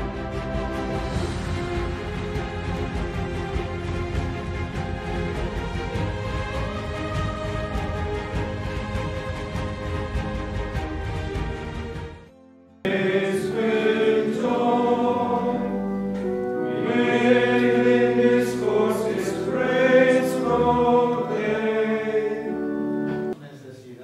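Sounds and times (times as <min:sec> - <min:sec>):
background music: 0:00.0 - 0:23.4
congregation singing a hymn: 0:04.8 - 0:10.8, 0:12.8 - 0:23.4.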